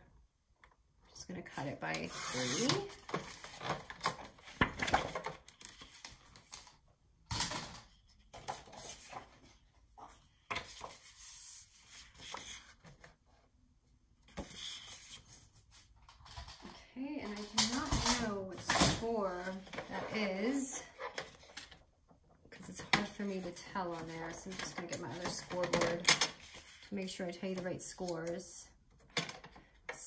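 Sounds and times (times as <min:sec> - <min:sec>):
paper rustling: 0:02.3 - 0:06.7, 0:08.2 - 0:13.1.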